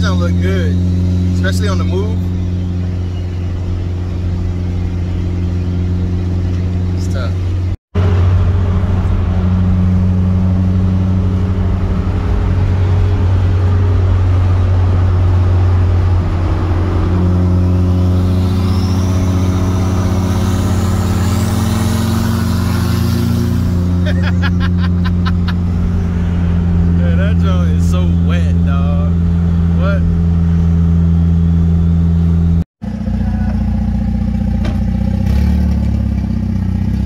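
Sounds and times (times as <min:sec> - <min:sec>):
car engine and road drone: 0:00.0 - 0:37.0
turbo whistle: 0:17.7 - 0:23.7.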